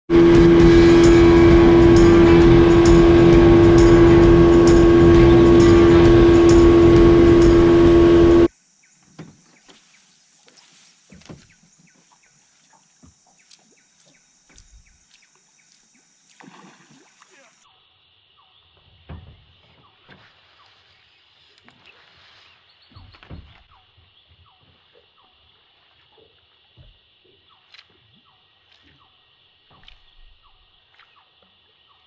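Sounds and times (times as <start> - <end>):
outboard motor running: 0.1 - 8.5.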